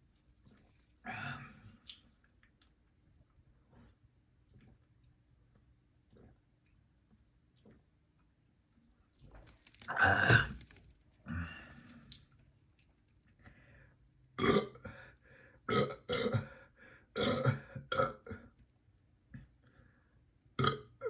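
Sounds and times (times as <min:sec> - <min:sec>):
man burping: 0:09.9 - 0:10.7, 0:11.3 - 0:11.7, 0:14.4 - 0:14.9, 0:15.7 - 0:16.6, 0:17.2 - 0:18.5, 0:20.6 - 0:21.0.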